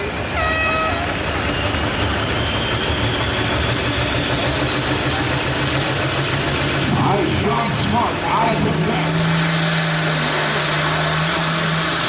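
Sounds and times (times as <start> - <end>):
diesel tractor engine idling: 0.9 - 12.0.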